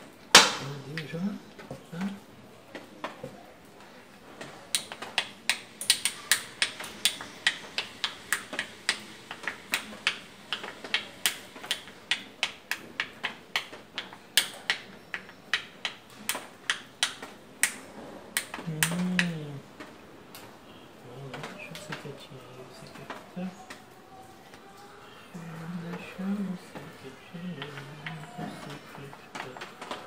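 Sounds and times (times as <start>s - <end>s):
plastic checkers pieces clicking: 4.4s - 20.5s, 25.9s - 30.0s.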